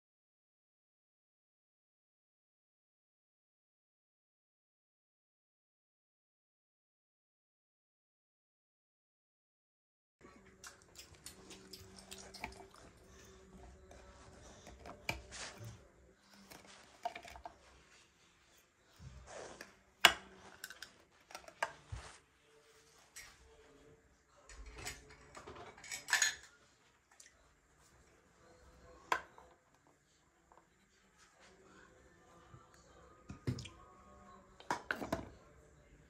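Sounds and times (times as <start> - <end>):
toiletries clinking and knocking: 24.7 - 26.5.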